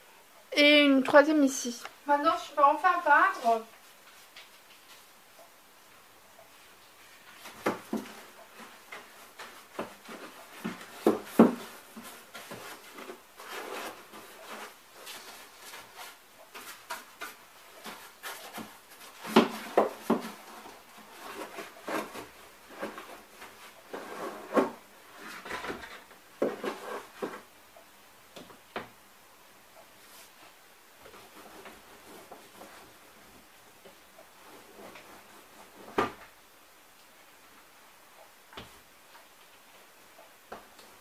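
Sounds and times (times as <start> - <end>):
paint roller rubbing cardboard: 9.3 - 25.4.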